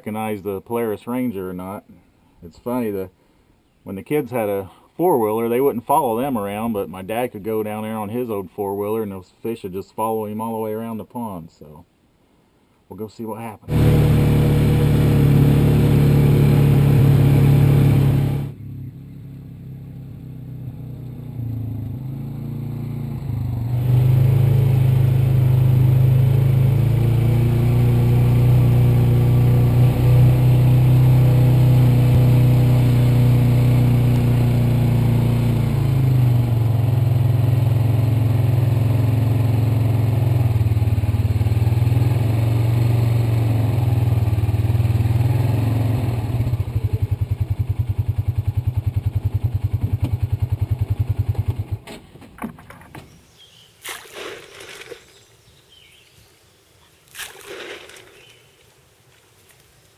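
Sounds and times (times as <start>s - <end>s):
utility vehicle engine running: 13.7s - 52.9s.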